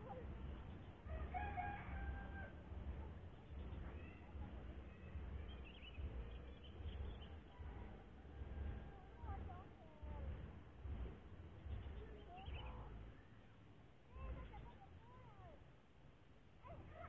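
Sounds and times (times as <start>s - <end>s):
steady low rumble: 0.0s - 17.0s
rooster crowing: 1.1s - 2.6s.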